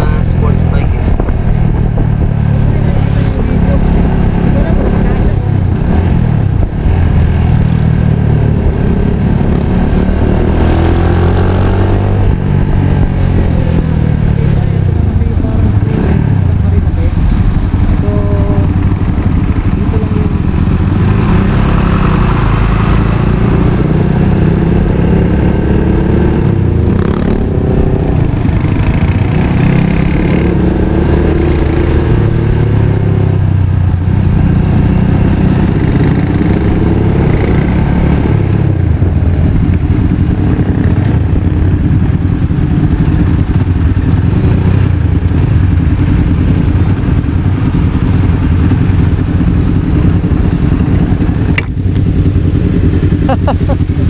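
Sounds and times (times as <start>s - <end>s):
steady low rumble: 0.0s - 23.8s
motorcycle engine revving: 0.0s - 54.0s.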